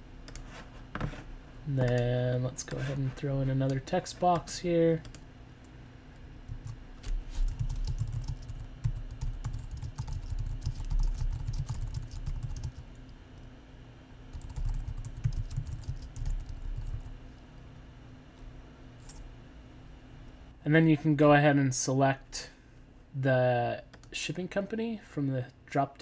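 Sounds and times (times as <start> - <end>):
computer keyboard typing: 7.5 - 13.0, 14.3 - 17.1.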